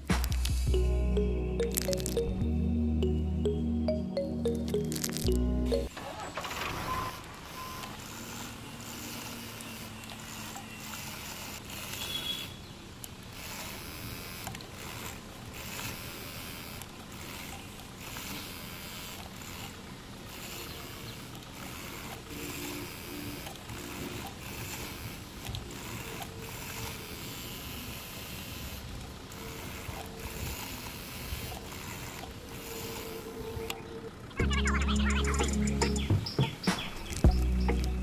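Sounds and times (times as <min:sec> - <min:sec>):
background music: 0:00.0 - 0:05.9, 0:34.0 - 0:38.0
small electric motor running: 0:07.8 - 0:33.7.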